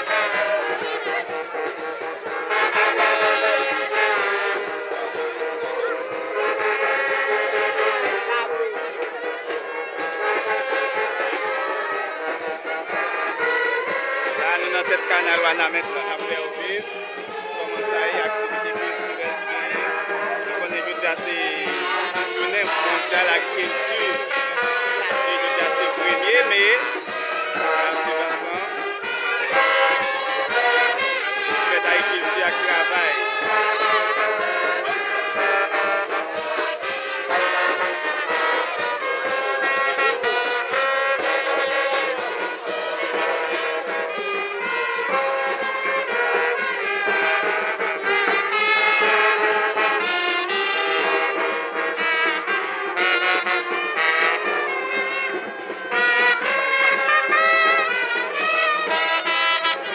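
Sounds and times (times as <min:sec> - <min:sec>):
brass band playing a tune: 0:00.0 - 0:59.9.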